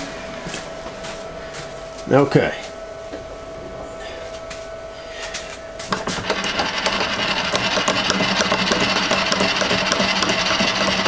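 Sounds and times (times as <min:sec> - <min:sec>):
spindle hum: 0:00.0 - 0:11.0
face mill cutting metal: 0:05.8 - 0:11.0.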